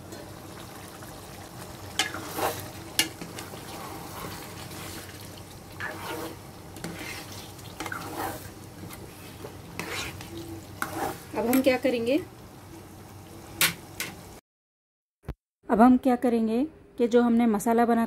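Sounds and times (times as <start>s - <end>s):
spatula scraping through gravy: 2.0s - 11.7s.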